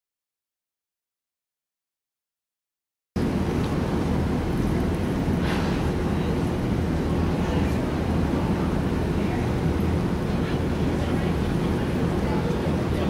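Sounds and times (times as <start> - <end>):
low rumble of arena room noise: 3.2 - 13.0.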